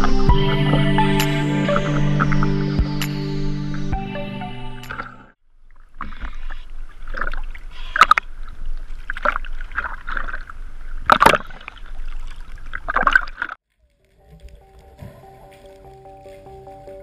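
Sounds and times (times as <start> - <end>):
sea water splashing: 4.9 - 13.6.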